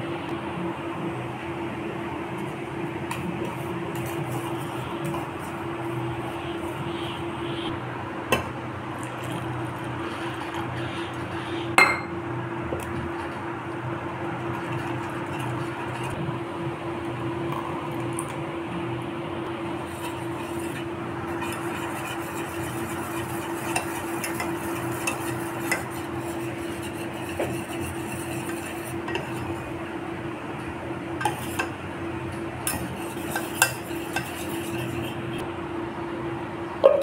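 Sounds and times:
whisk swishing in bowl: 0:03.4 - 0:06.8, 0:14.5 - 0:16.2, 0:19.8 - 0:29.8, 0:31.2 - 0:31.8, 0:32.6 - 0:35.4.

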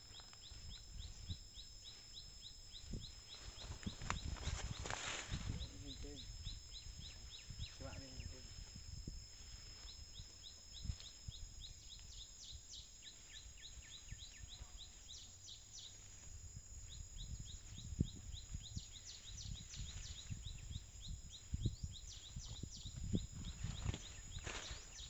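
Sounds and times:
high insect drone: 0:00.0 - 0:25.0
elephant moving in undergrowth: 0:03.1 - 0:06.2.

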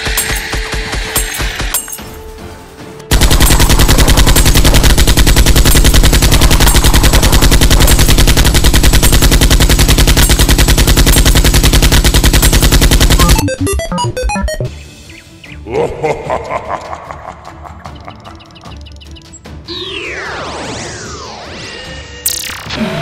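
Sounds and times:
rapid automatic gunfire: 0:03.1 - 0:13.5.

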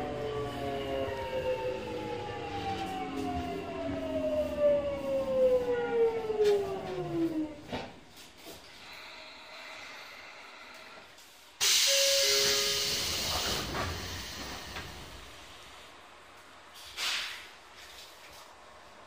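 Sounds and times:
compressed air hissing: 0:11.6 - 0:15.0, 0:16.8 - 0:17.5.

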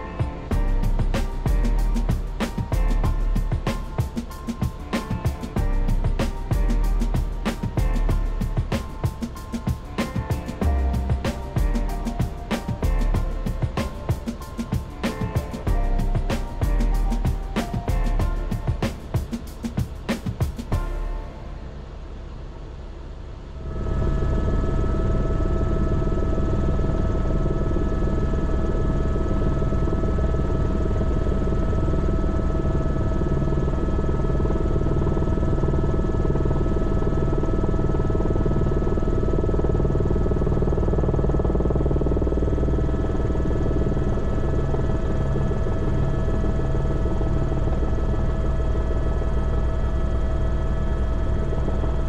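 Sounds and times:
helicopter turbine whine: 0:00.0 - 0:52.0
helicopter rotor pulsing: 0:33.5 - 0:52.0.

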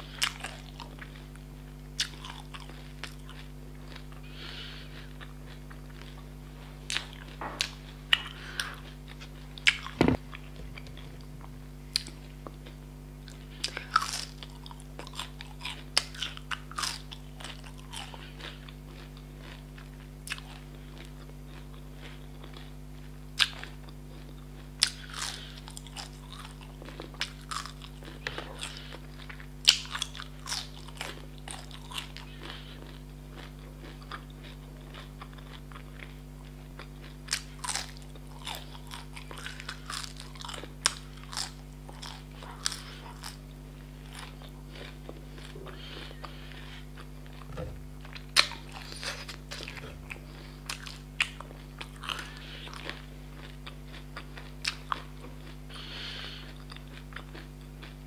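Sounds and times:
faint steady hum: 0:00.0 - 0:58.0
soft chewing: 0:00.0 - 0:58.0
crunchy biting: 0:02.0 - 0:06.3, 0:11.9 - 0:19.6, 0:23.4 - 0:36.1, 0:36.7 - 0:58.0.

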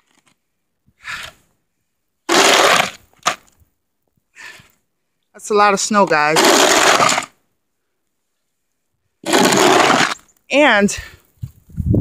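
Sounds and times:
snow shovel crunching snow: 0:06.1 - 0:07.4, 0:09.2 - 0:10.2.

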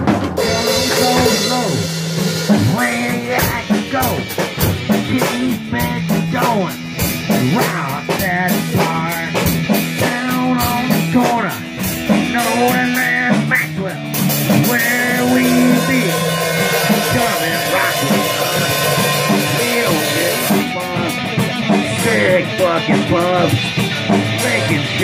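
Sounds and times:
drum kit and cymbals: 0:00.0 - 0:25.0
electric guitar low notes: 0:00.4 - 0:06.4
harmonica wailing: 0:14.8 - 0:20.5.

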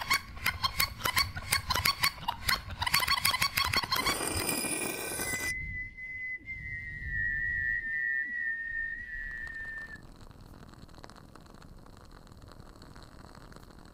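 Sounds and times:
long whistled note: 0:05.4 - 0:10.0.

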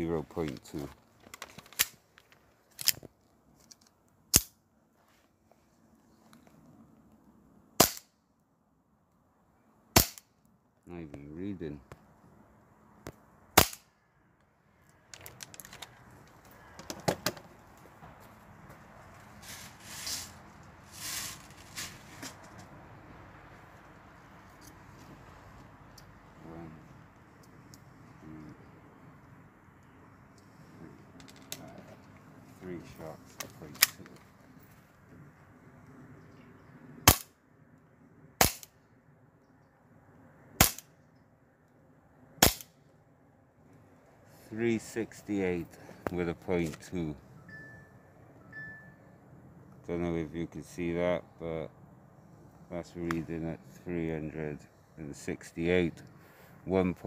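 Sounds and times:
handling clicks and knocks: 0:00.4 - 0:04.0, 0:15.1 - 0:18.2, 0:30.4 - 0:32.2
airsoft pistol shot: 0:07.8 - 0:08.1, 0:10.0 - 0:10.2, 0:13.6 - 0:13.9, 0:37.1 - 0:37.3, 0:38.4 - 0:38.7, 0:40.6 - 0:40.8, 0:42.4 - 0:42.7
rustling: 0:15.1 - 0:22.7.

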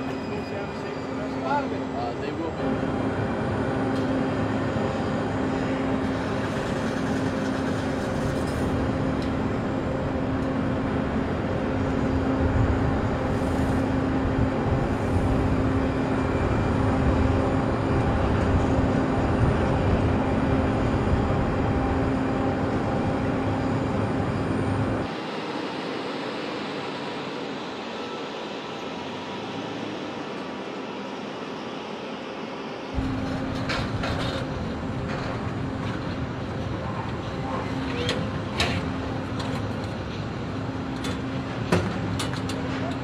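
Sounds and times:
tow tractor engine running: 0:33.0 - 0:43.0.

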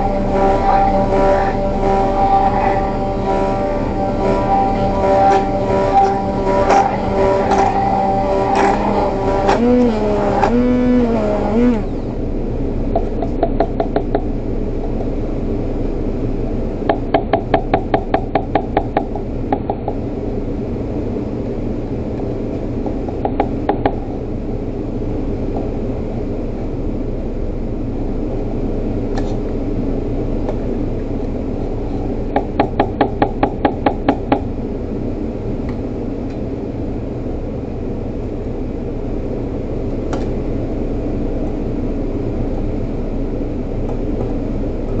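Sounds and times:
stick blender running: 0:00.0 - 0:12.2
steady hum: 0:00.0 - 0:45.0.

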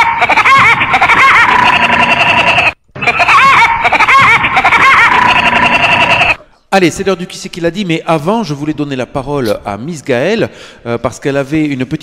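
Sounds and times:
jingle of high-pitched laughing: 0:00.0 - 0:06.4.

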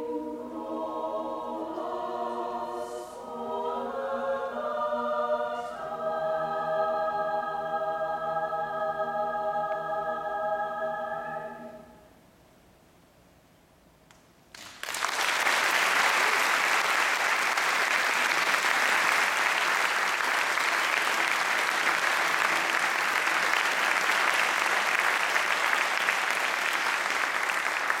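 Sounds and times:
audience applause: 0:14.5 - 0:28.0.

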